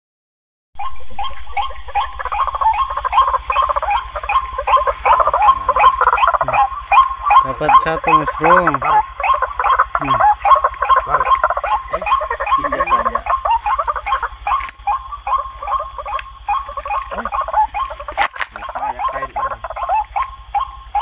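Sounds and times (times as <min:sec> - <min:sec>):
frogs calling: 0:00.8 - 0:21.0.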